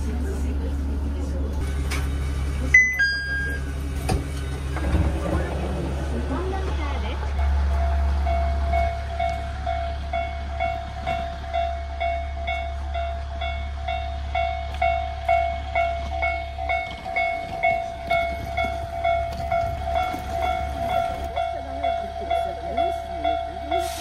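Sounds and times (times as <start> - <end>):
level crossing alarm dinging: 2.7 - 3.7.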